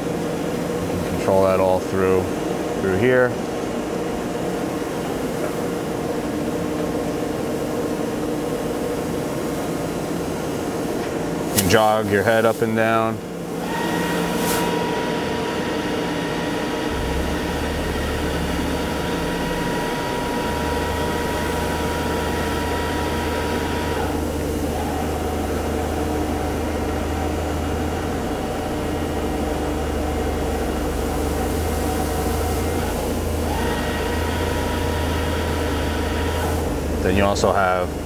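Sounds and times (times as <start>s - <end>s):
deep machine hum: 12.9s - 38.0s
grinder whine: 13.5s - 38.0s.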